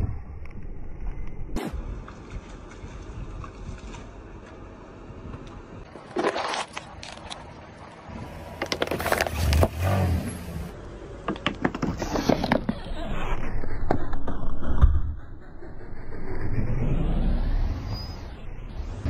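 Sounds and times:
plastic bottles crunching under tyre: 0:05.9 - 0:07.5, 0:08.5 - 0:09.9.

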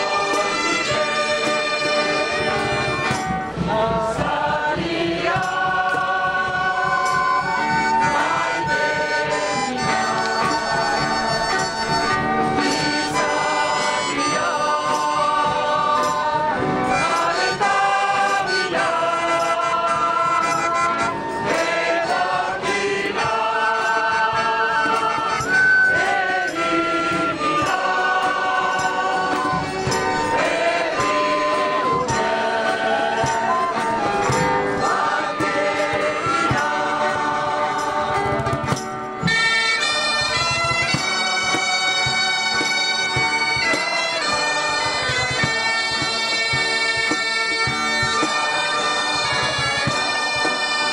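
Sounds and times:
bagpipes: 0:00.0 - 0:50.9
group singing in unison: 0:00.0 - 0:50.9.

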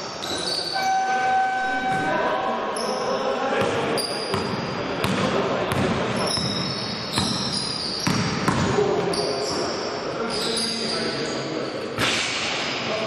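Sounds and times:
sneakers squeaking on floor: 0:00.0 - 0:02.2, 0:02.8 - 0:11.4
voices in a large hall: 0:00.0 - 0:13.0
basketball bouncing: 0:03.6 - 0:08.8.

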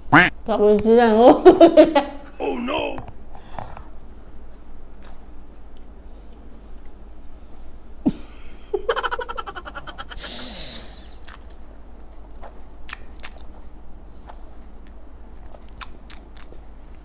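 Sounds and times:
man laughing: 0:08.8 - 0:10.4
mouth clicks chewing: 0:11.2 - 0:11.6, 0:12.3 - 0:16.6.

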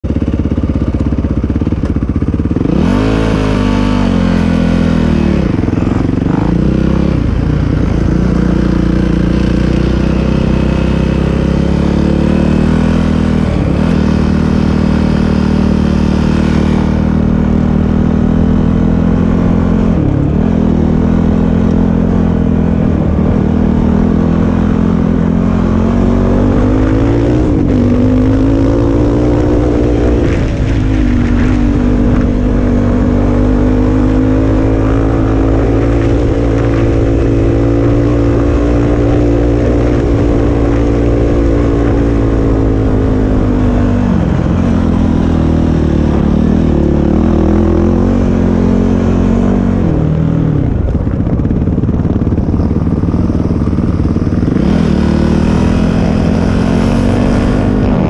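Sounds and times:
atv engine revving: 0:00.0 - 0:58.0.

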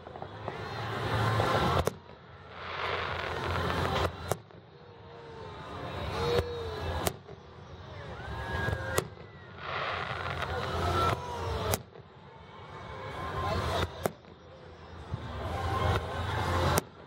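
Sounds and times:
fireworks bursting: 0:00.0 - 0:04.8, 0:08.3 - 0:12.1.

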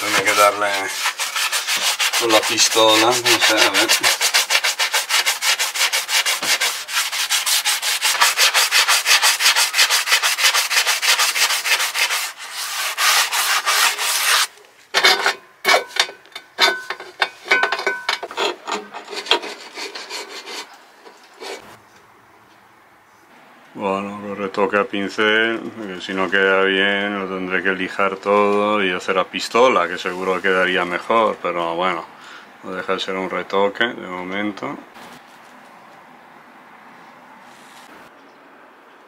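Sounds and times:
hand sanding strokes: 0:00.0 - 0:14.5, 0:19.0 - 0:21.7.

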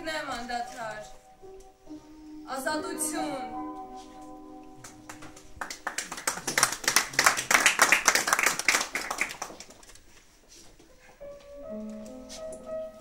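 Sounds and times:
soft background music: 0:00.0 - 0:06.0, 0:10.4 - 0:13.0
audience applauding: 0:04.8 - 0:10.0.

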